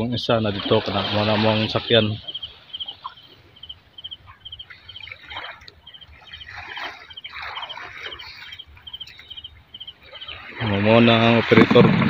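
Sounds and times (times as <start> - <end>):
water splashing around a boat: 0.0 - 12.0
faint high chirping: 1.9 - 10.5.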